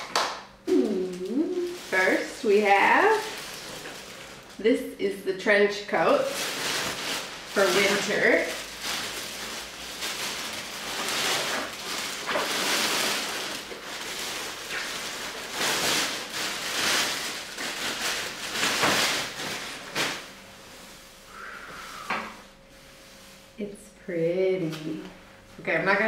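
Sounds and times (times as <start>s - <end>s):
plastic wrapping crinkling: 0.7s - 20.5s.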